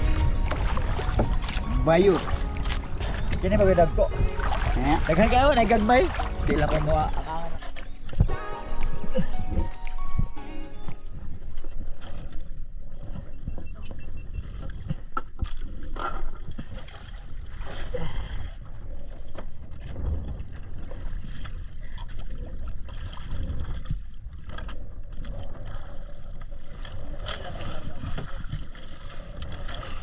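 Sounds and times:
low rumble: 0.0 - 14.8
sea water sloshing and bubbling: 0.0 - 30.0.

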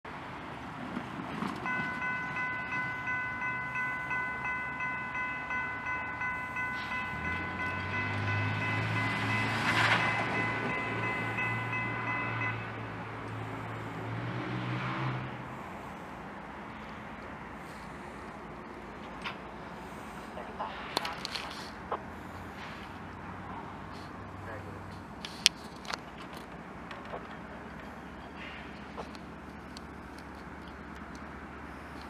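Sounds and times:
diesel locomotive engine drone: 0.0 - 32.0
rail rumble: 0.1 - 32.0
crossing warning bell ringing: 1.4 - 14.1.

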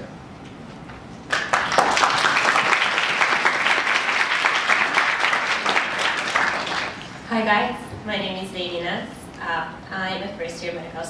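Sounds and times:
audience applauding: 1.3 - 7.2.

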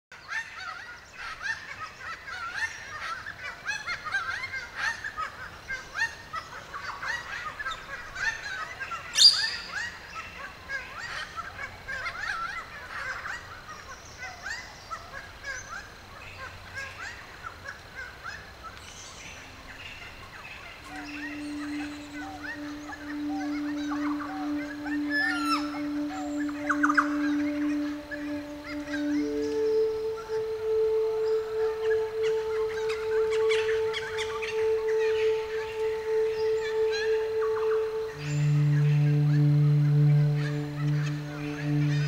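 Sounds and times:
forest bird chorus: 0.2 - 42.0
steady low tone: 19.1 - 42.0.

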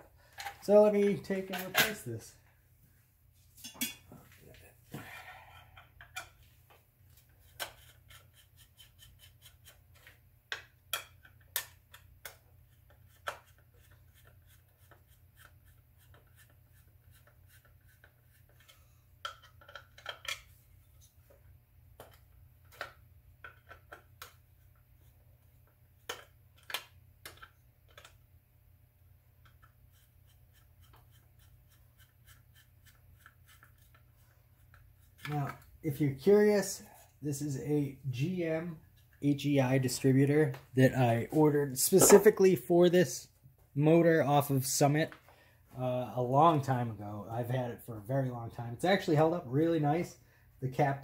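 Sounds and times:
screwdriver clicks and scraping: 26.0 - 28.2.

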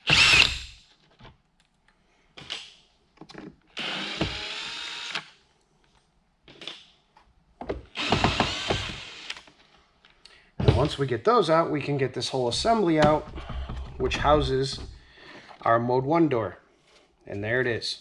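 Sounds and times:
cordless drill whirring: 0.0 - 0.7, 3.8 - 5.3, 8.0 - 9.5.

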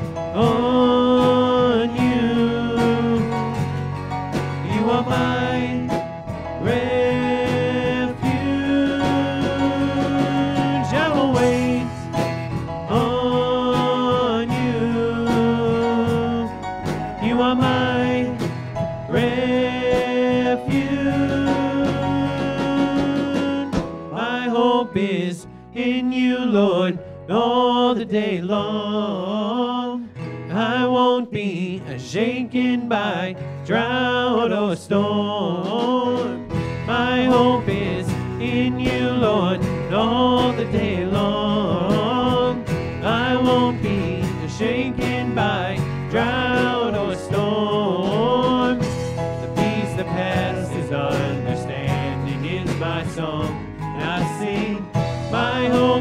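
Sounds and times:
person singing: 0.0 - 3.9, 4.5 - 56.0
guitar accompaniment: 0.0 - 56.0.

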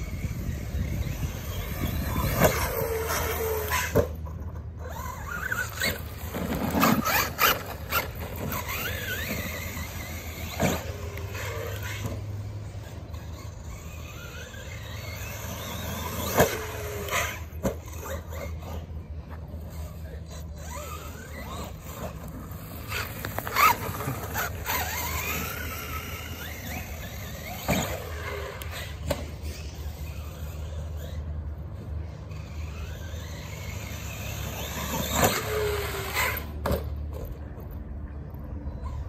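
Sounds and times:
electric motor whining: 0.0 - 37.6.

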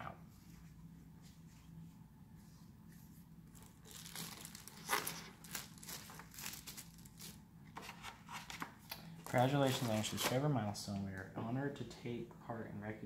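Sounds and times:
faint steady hum: 0.0 - 13.0
plastic bag crinkling: 3.5 - 7.4.

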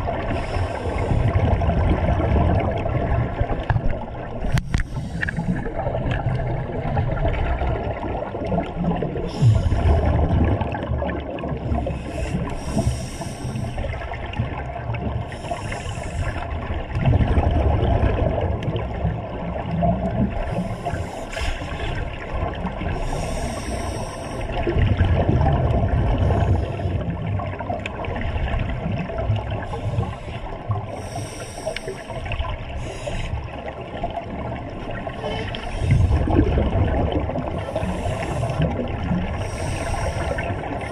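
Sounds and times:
exhaled air bubbling underwater: 0.0 - 40.9
regulator hissing inhalations: 11.9 - 13.8, 15.3 - 16.4, 23.0 - 24.5, 29.7 - 32.2, 39.4 - 40.5.

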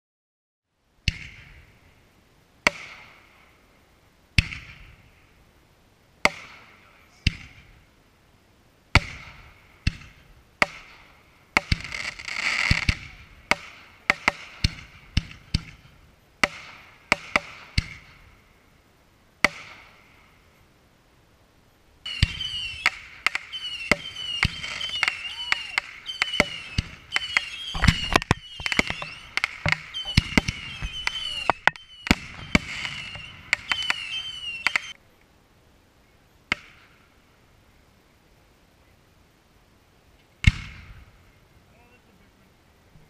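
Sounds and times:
crackling firework bursts: 1.0 - 5.6, 6.2 - 8.2, 8.9 - 20.7, 22.0 - 35.0, 40.2 - 41.4
firework shells bursting: 8.9 - 18.4, 22.1 - 35.0.

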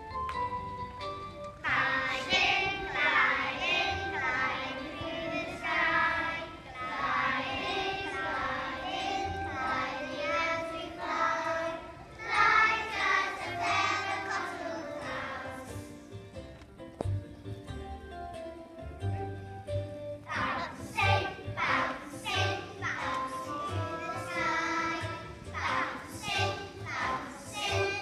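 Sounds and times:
accompanying music: 0.0 - 28.0
children singing: 1.6 - 15.9, 20.3 - 28.0.

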